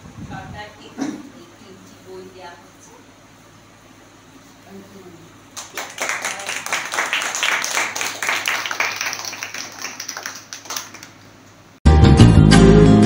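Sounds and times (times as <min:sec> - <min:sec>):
people clapping: 0:05.6 - 0:11.4
loud music: 0:11.9 - 0:13.0.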